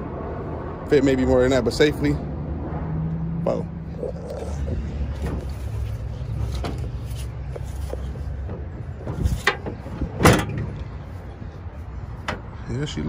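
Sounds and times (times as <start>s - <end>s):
car door slamming: 8.4s - 10.8s.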